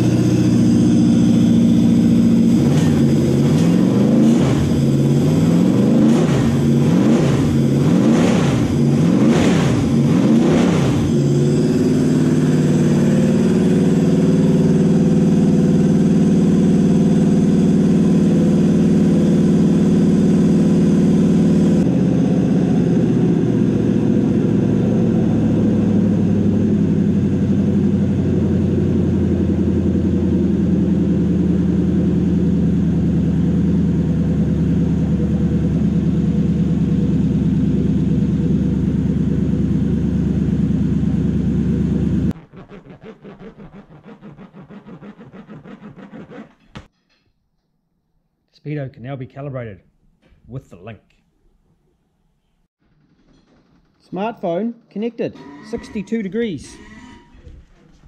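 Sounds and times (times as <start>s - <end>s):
car engine idling: 0.0s - 42.4s.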